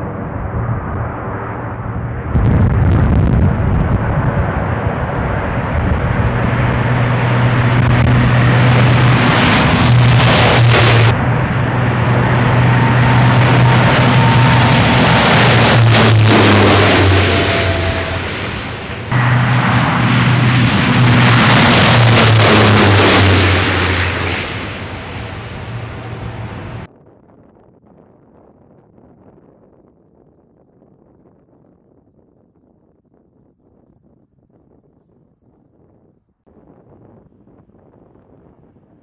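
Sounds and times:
propeller aircraft drone: 0:00.0 - 0:29.8.

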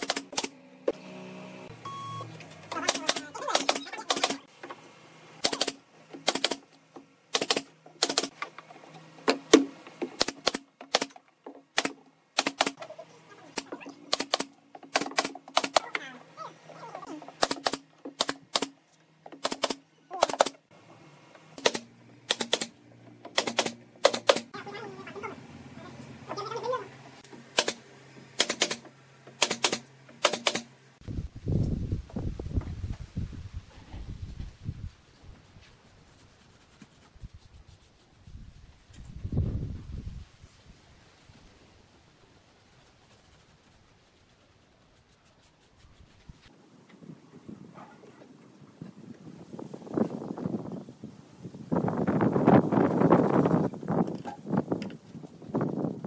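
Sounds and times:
pneumatic nail gun firing: 0:00.0 - 0:01.0, 0:02.7 - 0:04.5, 0:05.4 - 0:06.7, 0:07.3 - 0:08.4, 0:09.3 - 0:12.8, 0:13.6 - 0:15.9, 0:17.4 - 0:18.8, 0:19.4 - 0:20.6, 0:21.6 - 0:24.5, 0:27.5 - 0:27.8, 0:28.4 - 0:30.7.

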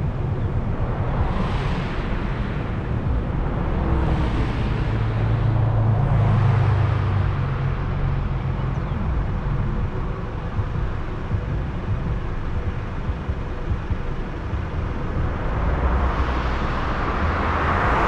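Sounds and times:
car engine and tyre rumble: 0:00.0 - 0:18.0
rushing road noise: 0:00.0 - 0:18.0.

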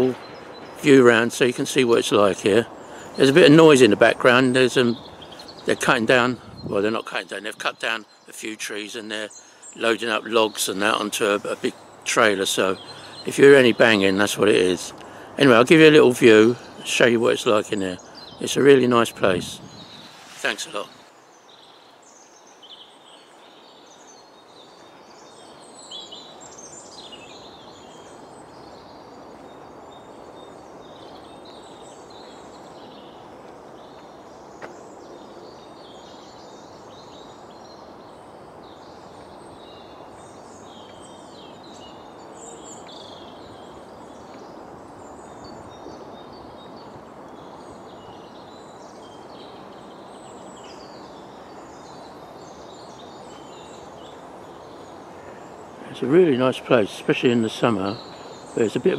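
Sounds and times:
songbirds chirping and trilling: 0:00.0 - 0:58.9
steady rushing noise: 0:15.4 - 0:21.2.

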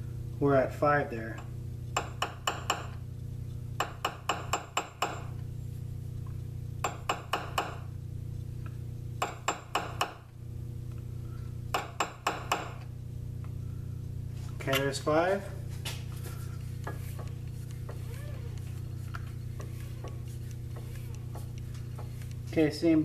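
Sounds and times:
low hum: 0:07.7 - 0:09.2, 0:12.8 - 0:23.0.

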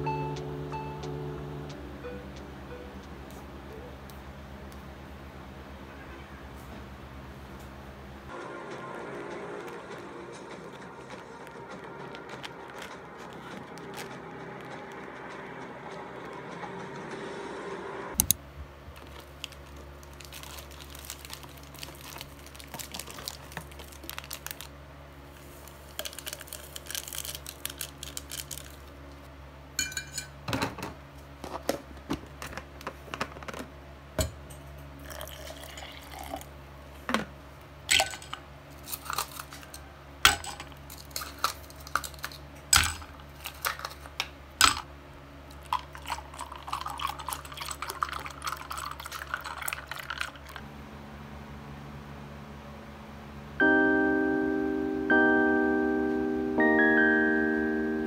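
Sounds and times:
steady low hum: 0:00.0 - 0:58.0
small objects clicking and clinking: 0:26.0 - 0:28.8, 0:37.9 - 0:44.9.

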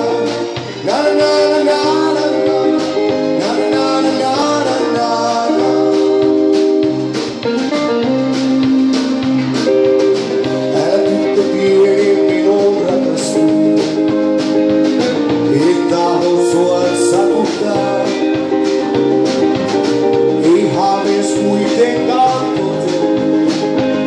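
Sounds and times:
accordion: 0:00.0 - 0:24.0
bass guitar: 0:00.0 - 0:24.0
drum kit: 0:00.0 - 0:24.0
electric guitar lead: 0:00.0 - 0:24.0.

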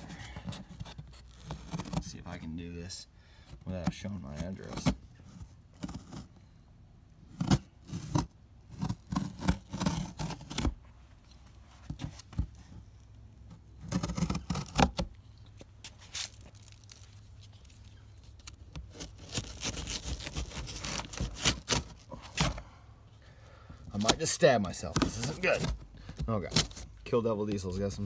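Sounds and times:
knife cutting packing tape: 0:07.4 - 0:10.7, 0:18.4 - 0:22.6, 0:26.5 - 0:26.9.

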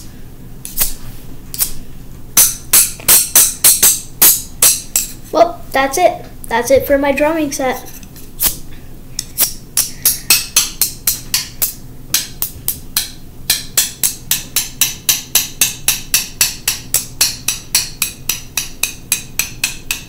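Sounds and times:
chopsticks tapping on hard object: 0:09.8 - 0:20.0.

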